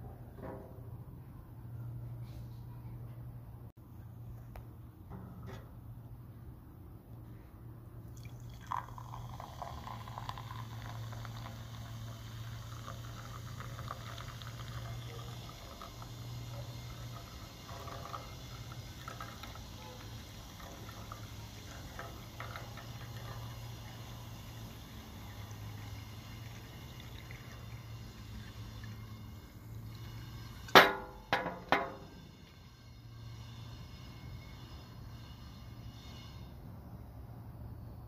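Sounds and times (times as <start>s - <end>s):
cider pouring into glass: 8.1s - 32.0s
glass ringing: 8.2s - 11.5s.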